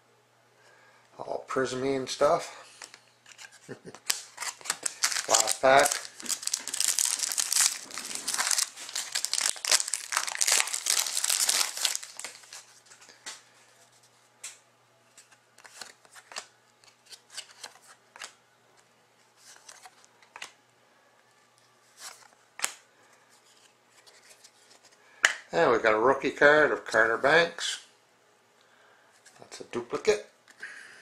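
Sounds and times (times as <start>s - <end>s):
cards tapping and rustling: 2.8s - 12.6s, 15.2s - 18.4s
foil wrapper tearing and crinkling: 3.8s - 12.7s.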